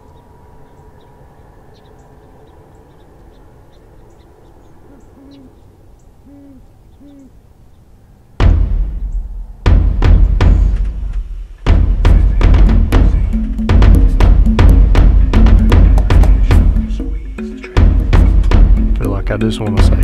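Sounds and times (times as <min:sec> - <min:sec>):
owl hooting: 0:00.0 - 0:07.8
small birds chirping: 0:00.0 - 0:09.4
drum-heavy music: 0:08.4 - 0:20.0.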